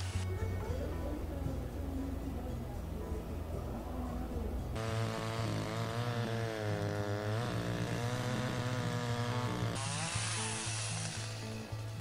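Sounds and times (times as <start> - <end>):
background music: 0.0 - 12.0
chainsaw cutting log: 4.8 - 11.6.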